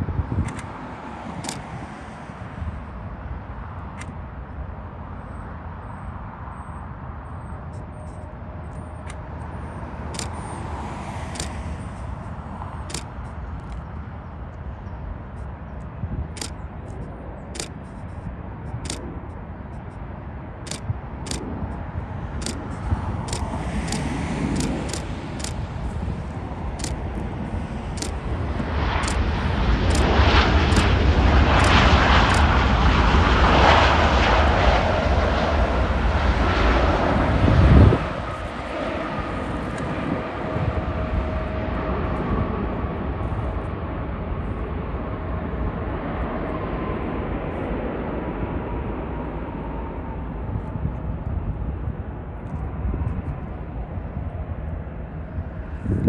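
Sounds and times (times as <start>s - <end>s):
faint engine whine: 0.0s - 56.0s
jet engine noise: 0.0s - 56.0s
sharp high clicks: 1.4s - 1.7s, 10.1s - 10.6s, 11.3s - 11.9s, 12.8s - 13.8s, 16.3s - 18.1s, 18.7s - 19.1s, 20.6s - 21.5s, 22.4s - 25.7s, 26.8s - 27.2s, 27.9s - 28.3s, 29.0s - 29.2s, 29.9s - 30.1s, 30.7s - 30.9s, 31.6s - 32.5s.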